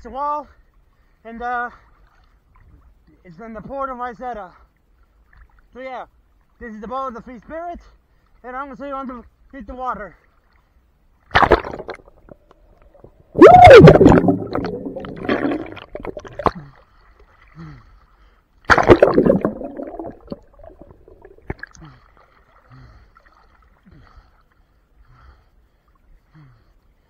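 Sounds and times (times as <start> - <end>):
loud bubbling burst: 11.4 - 12.4, 13.0 - 16.6, 18.7 - 21.8
muffled underwater water gurgling: 11.6 - 16.7, 18.7 - 22.0.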